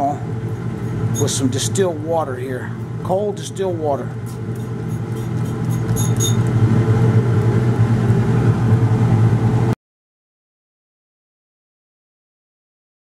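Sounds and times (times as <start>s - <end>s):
low mechanical hum: 0.0s - 9.8s.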